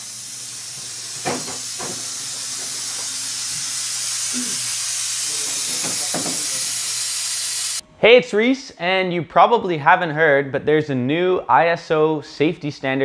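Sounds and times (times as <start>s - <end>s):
loud steady hiss: 0.0s - 7.9s.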